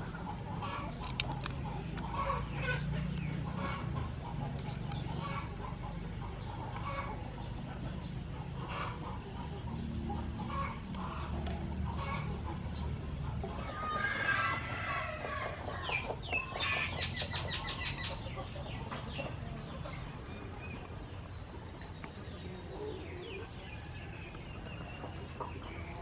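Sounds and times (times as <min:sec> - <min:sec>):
chickens clucking: 0:00.0 - 0:26.0.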